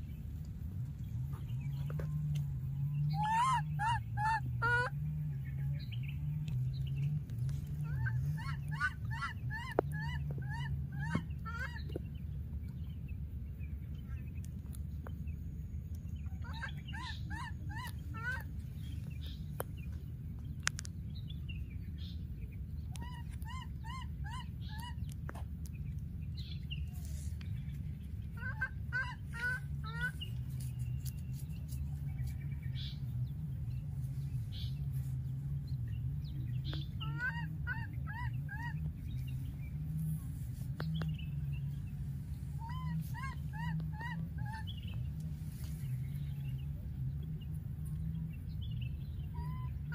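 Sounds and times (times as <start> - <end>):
low rumble: 0.0 - 23.4
baby monkey calling: 3.1 - 4.9, 7.8 - 11.8.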